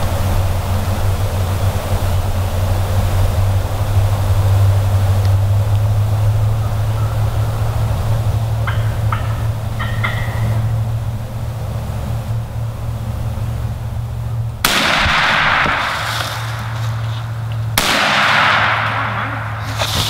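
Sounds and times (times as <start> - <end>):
shotgun shots: 14.6 - 20.0.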